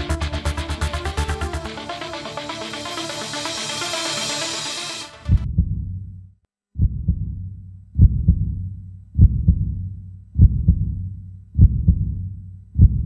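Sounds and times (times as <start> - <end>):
electronic music: 0.0 - 5.4
heartbeat double thump: 5.3 - 5.9, 6.8 - 7.4, 8.0 - 8.6, 9.2 - 9.8, 10.4 - 11.0, 11.6 - 12.2, 12.8 - 13.0.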